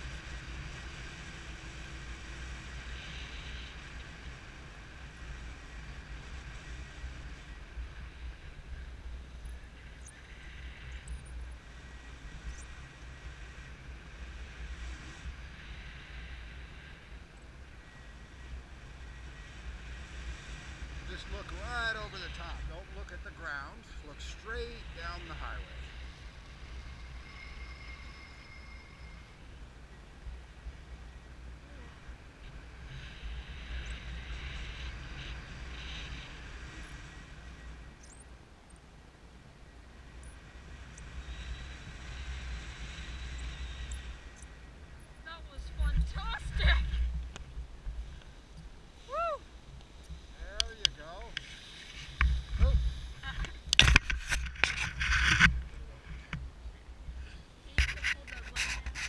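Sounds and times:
wind rushing over microphone: 0.0 - 59.0
wind buffeting microphone: 40.0 - 59.0.

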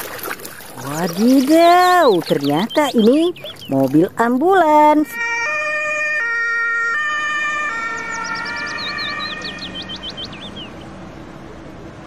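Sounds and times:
two-tone ambulance siren: 4.8 - 11.4.

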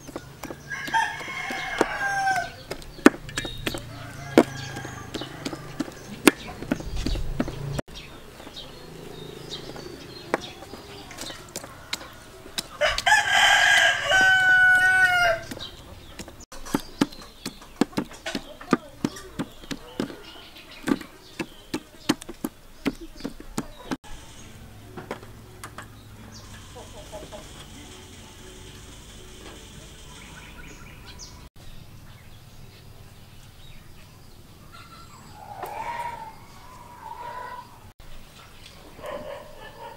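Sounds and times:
rural background noise: 0.0 - 39.9
rooster crowing: 0.4 - 2.8, 3.7 - 6.9, 9.2 - 15.8, 35.3 - 37.9.

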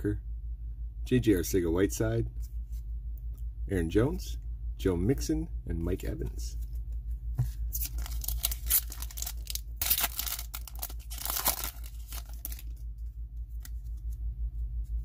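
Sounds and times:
handling of cards: 6.5 - 15.0
foil pack tearing and crinkling: 7.7 - 12.8.

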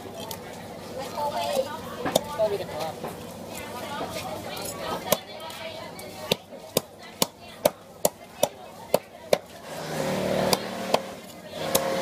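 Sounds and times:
cleaver chopping on wooden board: 6.3 - 12.0.

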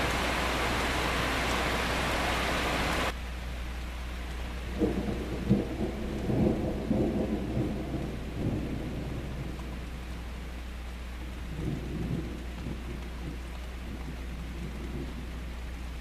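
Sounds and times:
heavy rain hissing: 0.0 - 16.0
thunder rumble with cracks: 4.7 - 10.2, 11.4 - 15.4.

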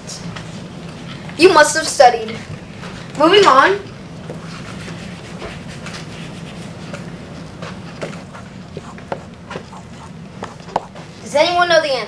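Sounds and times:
marker squeaking on whiteboard: 8.0 - 11.0.

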